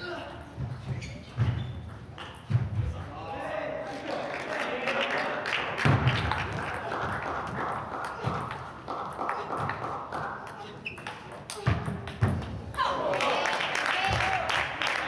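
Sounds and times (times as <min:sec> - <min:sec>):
murmur of voices: 0:02.9 - 0:12.0.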